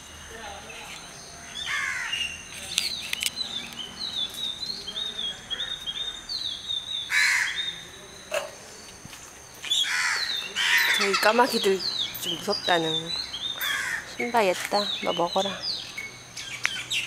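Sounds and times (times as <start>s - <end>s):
high bird chirping: 0.2s - 17.0s
crows cawing: 1.5s - 2.3s, 7.1s - 7.7s, 9.7s - 11.5s, 13.6s - 14.3s.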